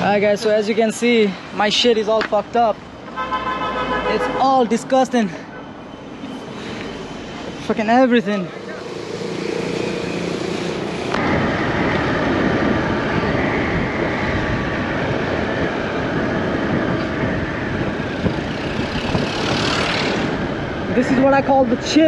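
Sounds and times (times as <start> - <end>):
wind rushing on microphone: 9.0 - 22.0
motor scooter engine: 18.2 - 20.4.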